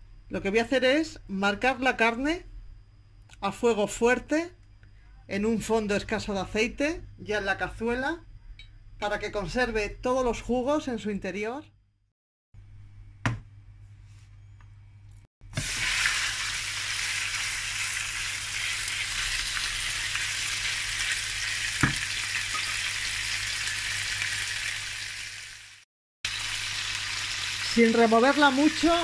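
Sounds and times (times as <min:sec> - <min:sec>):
knock: 0:13.2 - 0:13.5, 0:21.8 - 0:22.0
meat sizzling in a pan: 0:15.5 - 0:29.0.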